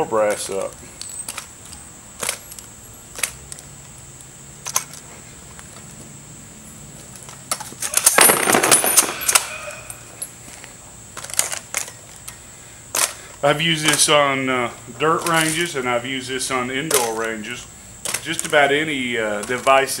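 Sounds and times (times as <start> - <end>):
brass casings clinking: 0.0 - 1.7, 7.8 - 10.6.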